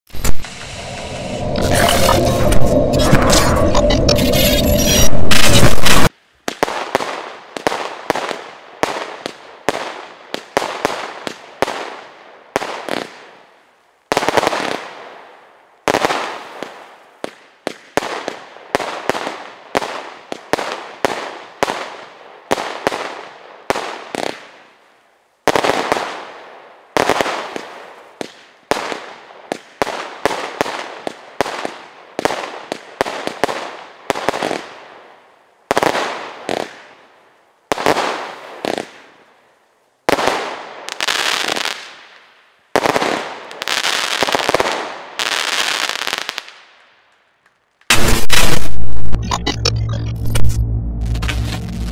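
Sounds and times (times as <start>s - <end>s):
fireworks barrage firing: 0.1s - 11.9s, 47.9s - 49.6s.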